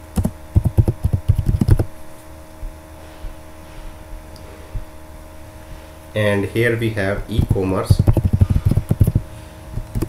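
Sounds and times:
low electrical hum: 0.0 - 10.0
keyboard keystrokes: 7.4 - 9.2, 9.8 - 10.0.

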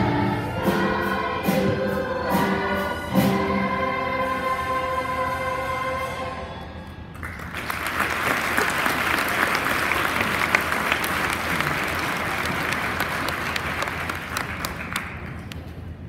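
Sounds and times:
audience applauding: 7.2 - 15.7.

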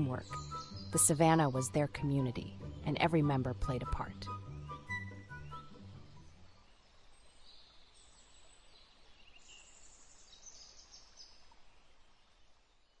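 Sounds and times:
soft outdoor hiss: 0.0 - 13.0
high bird chirps: 0.2 - 1.8.

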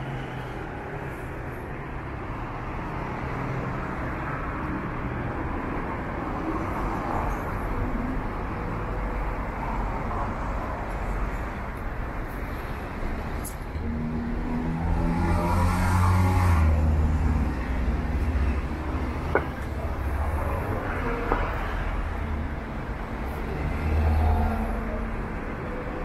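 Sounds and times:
cars driving by: 0.0 - 26.0
vehicle engine passing close: 13.9 - 21.0.

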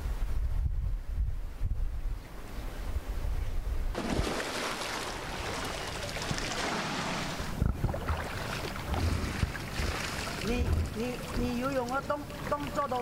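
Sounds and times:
wind rumbling on microphone: 0.0 - 4.4, 5.2 - 12.9
water splashing from swimming strokes: 4.0 - 13.0.

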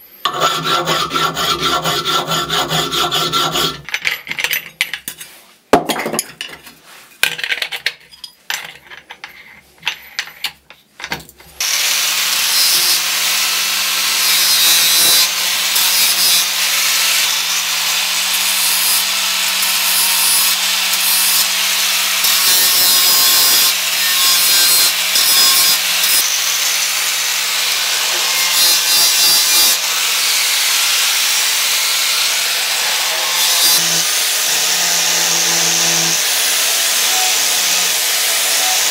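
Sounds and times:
angle grinder grinding steel: 0.0 - 3.9, 11.6 - 38.9
file scraping steel blade: 0.0 - 3.9, 12.5 - 38.9.

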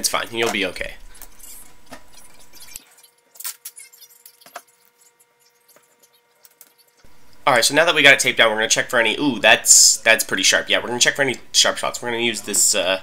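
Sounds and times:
tape crackling and clicking: 0.0 - 7.5
low steady hum: 0.0 - 13.0.

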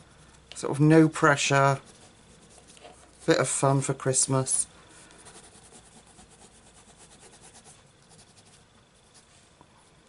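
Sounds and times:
pencil scratching on paper: 1.8 - 3.4, 5.2 - 9.3.

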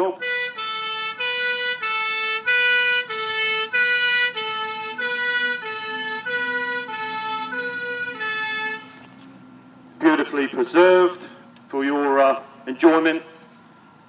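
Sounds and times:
two-tone fire engine siren: 0.0 - 9.1.

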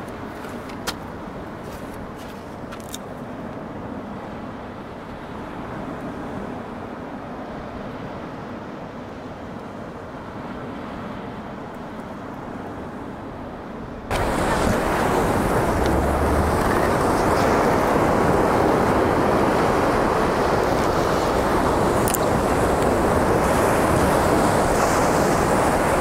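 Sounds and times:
wind: 0.0 - 26.0
surf breaking: 14.1 - 26.0
wind buffeting microphone: 14.1 - 26.0.

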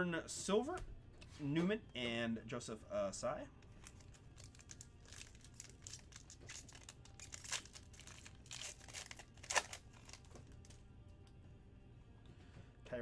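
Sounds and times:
foil wrapper tearing and crinkling: 3.8 - 10.8.

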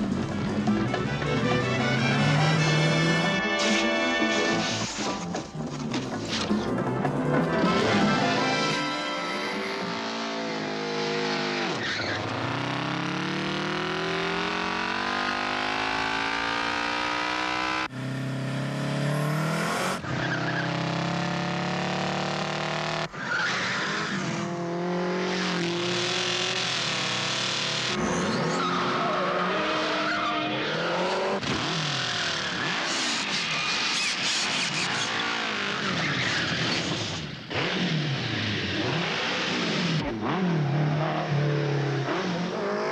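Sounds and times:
car engines revving hard: 0.0 - 5.0, 7.7 - 42.9
tyre squeal: 11.6 - 12.5, 20.0 - 20.8, 28.0 - 37.2.

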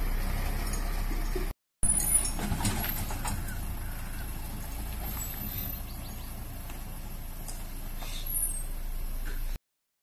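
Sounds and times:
diesel truck engine pulling away: 0.0 - 9.6.

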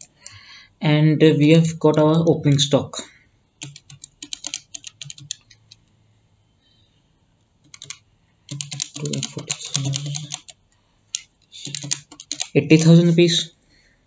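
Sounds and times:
keyboard keys typing: 0.0 - 0.4, 3.6 - 5.9, 7.6 - 13.2.

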